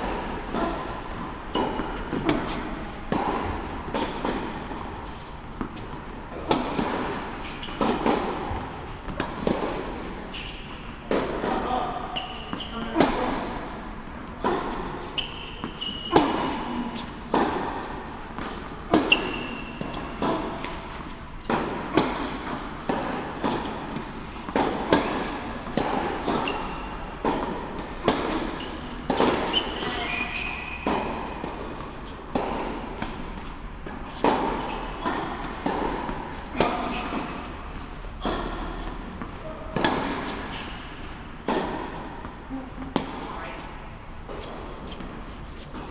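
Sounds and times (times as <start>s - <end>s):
tennis balls bouncing on hard court: 0.0s - 45.9s
tennis balls struck by rackets: 0.0s - 45.9s
shoe squeaks: 7.3s - 7.8s, 10.2s - 11.1s, 11.9s - 13.0s, 15.0s - 17.1s, 19.0s - 21.1s, 26.3s - 27.2s, 28.2s - 31.4s.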